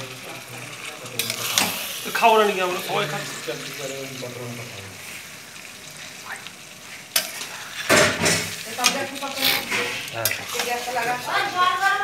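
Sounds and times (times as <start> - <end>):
curry sizzling: 0.0 - 12.0
spatula scraping metal pan: 7.2 - 11.2.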